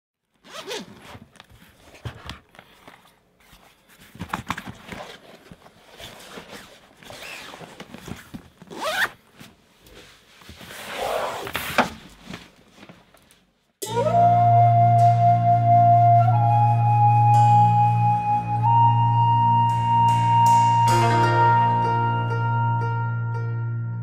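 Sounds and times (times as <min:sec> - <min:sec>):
zipper being pulled: 0:00.3 - 0:03.1, 0:04.9 - 0:09.3, 0:10.7 - 0:11.8
handling and rustling: 0:00.3 - 0:13.7.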